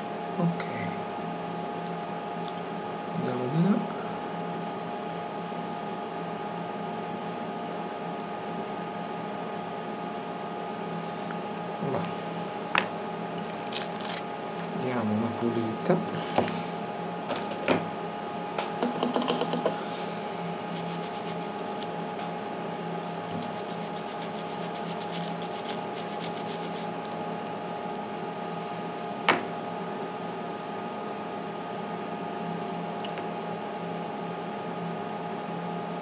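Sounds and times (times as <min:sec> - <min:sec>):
electrical hum from bench equipment: 0:00.0 - 0:36.0
rapid fine scratching: 0:20.7 - 0:22.0, 0:23.0 - 0:27.0.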